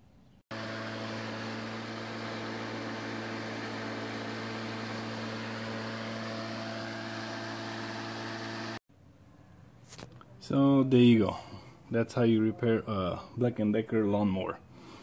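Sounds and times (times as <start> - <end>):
electric lawnmower motor running: 0.5 - 8.8.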